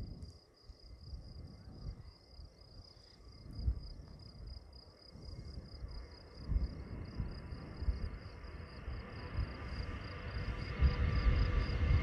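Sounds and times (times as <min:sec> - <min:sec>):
low rumble: 0:05.2 - 0:12.0.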